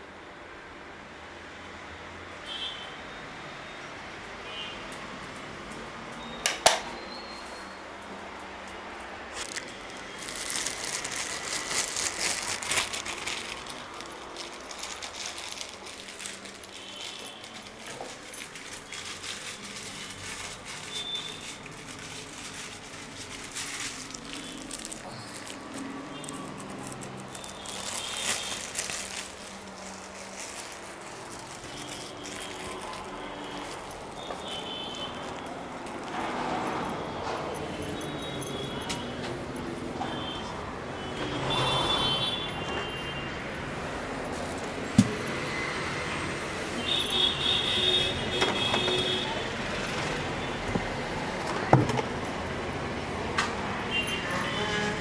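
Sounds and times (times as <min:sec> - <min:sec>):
street traffic hum: 0:00.0 - 0:55.0
plastic bag crinkling: 0:09.3 - 0:40.4, 0:43.6 - 0:45.6, 0:46.3 - 0:52.9.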